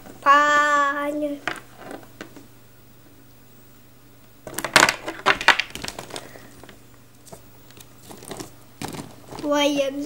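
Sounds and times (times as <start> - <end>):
plastic figures clattering: 1.4 - 2.4, 4.4 - 9.7.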